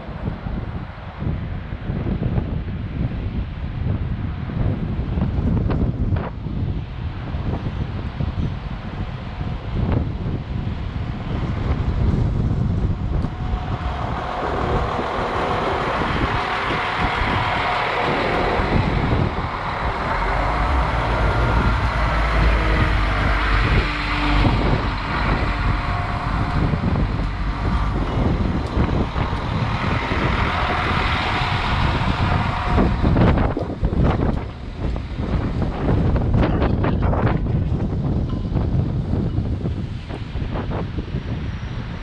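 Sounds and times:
diesel train rumbling past: 0.0 - 42.0
train wheels on rails: 8.9 - 41.3.

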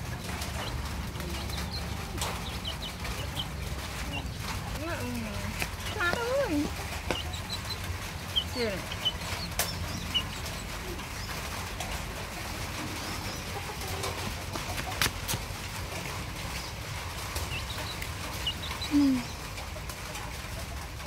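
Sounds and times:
steady low rumble: 0.0 - 19.6
faint bird chirps: 17.5 - 19.4.

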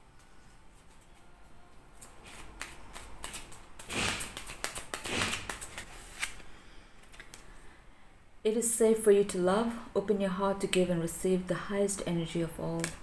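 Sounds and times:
papery card swishes: 2.0 - 6.4
cards shuffling: 2.0 - 7.5.

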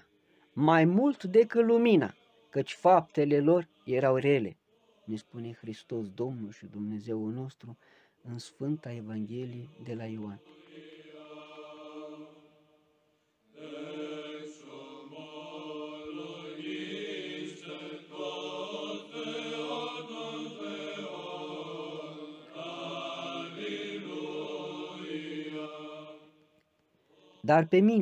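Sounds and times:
choral chant: 0.0 - 7.0, 7.6 - 28.0.

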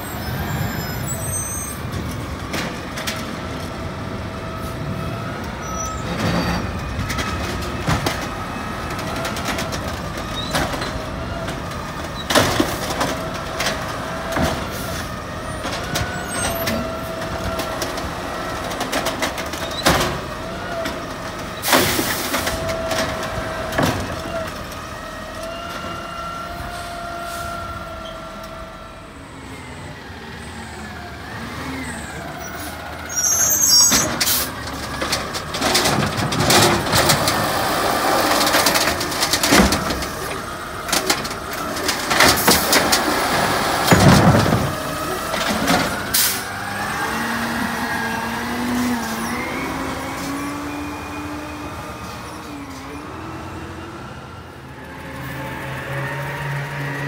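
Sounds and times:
diesel engine: 0.0 - 57.0
cart banging and clattering: 5.5 - 24.8, 33.2 - 48.5.

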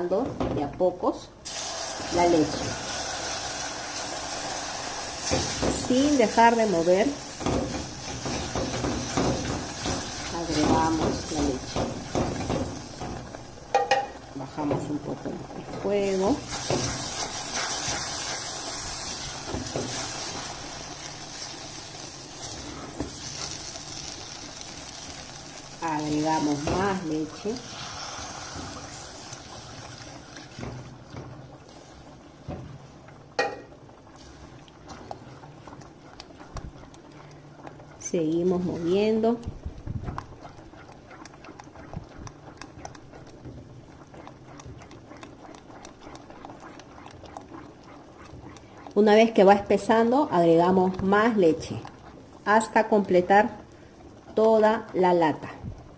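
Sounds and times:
roux sizzling in pot: 1.4 - 55.9
spatula stirring paste: 34.2 - 55.5
spatula scraping pot: 34.9 - 53.3.

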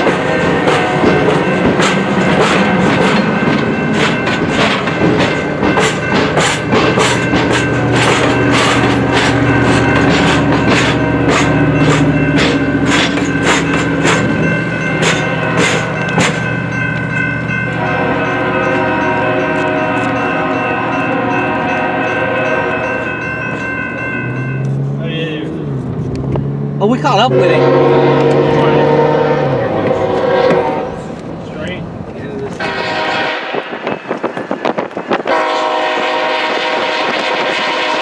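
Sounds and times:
train wheels clicking over rail joints: 0.0 - 21.2, 29.7 - 38.0
train horn: 17.7 - 23.0, 27.2 - 31.1, 32.6 - 34.0, 35.2 - 38.0.

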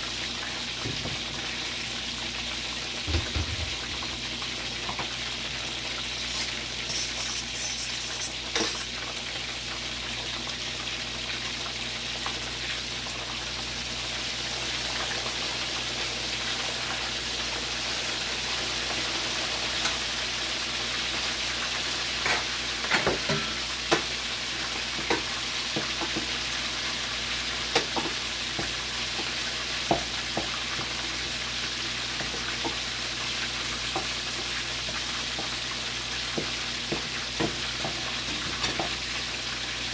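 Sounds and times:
chicken frying in hot oil: 0.0 - 39.9.

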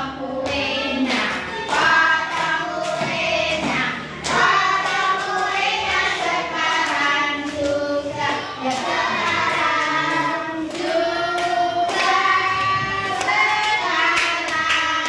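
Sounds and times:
children singing in chorus: 0.0 - 15.0.

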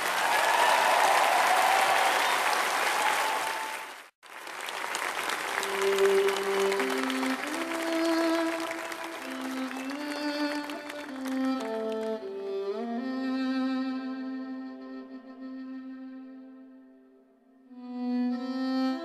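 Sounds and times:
audience applause: 0.0 - 12.4
slow instrumental music: 5.6 - 19.0.

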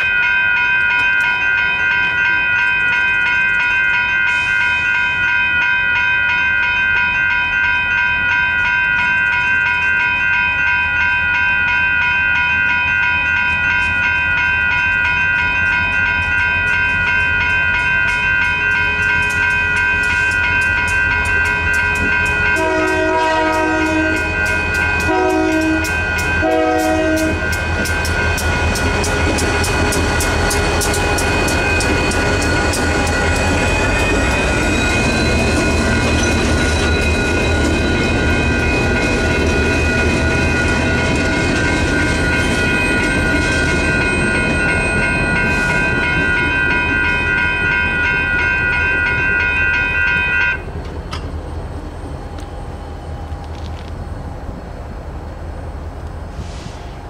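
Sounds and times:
crossing bell ringing: 0.0 - 54.6
train rumbling: 0.0 - 57.0
locomotive horn blasts: 22.5 - 27.6, 48.1 - 50.7.

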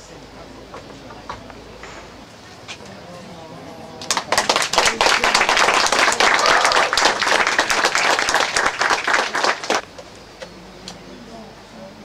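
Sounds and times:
people applauding: 4.0 - 9.8.

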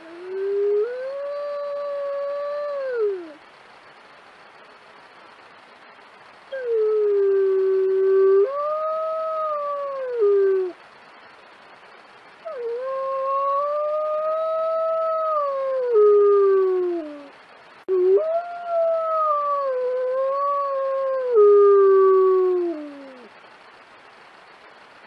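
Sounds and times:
wolf howling: 0.0 - 3.4, 6.6 - 10.8, 12.5 - 17.3, 17.9 - 23.3.

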